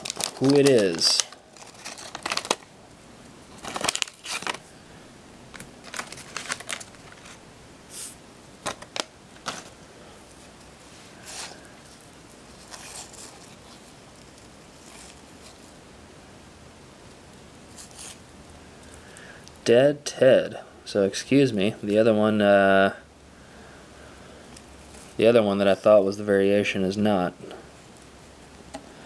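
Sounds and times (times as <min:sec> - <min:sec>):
wrapper crinkling: 0:00.0 - 0:02.7, 0:03.5 - 0:04.7, 0:05.5 - 0:07.4, 0:08.6 - 0:09.8, 0:10.4 - 0:15.8.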